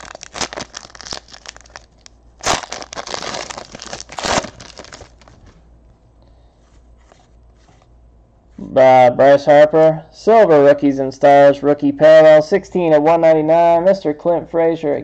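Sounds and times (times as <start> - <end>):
foil ripping: 0.0 - 5.5
cards rustling: 0.0 - 5.6
foil wrapper crinkling: 0.0 - 5.6.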